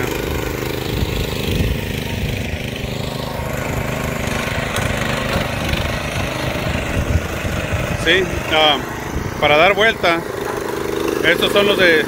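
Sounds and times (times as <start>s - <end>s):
small gasoline engine running: 0.0s - 12.0s.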